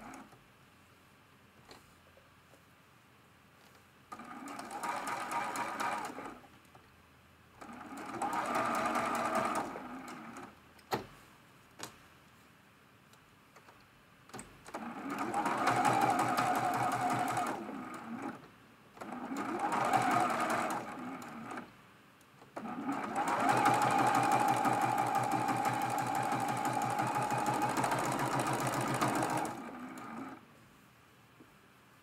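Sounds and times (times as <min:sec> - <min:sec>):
sewing machine stitching: 0:04.1 - 0:06.4, 0:07.6 - 0:10.5, 0:14.7 - 0:18.4, 0:19.0 - 0:21.7, 0:22.6 - 0:30.4.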